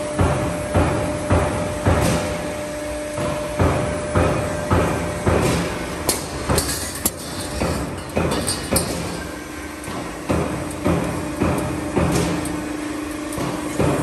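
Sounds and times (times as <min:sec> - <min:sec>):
roll forming machine running: 0:00.0 - 0:14.0.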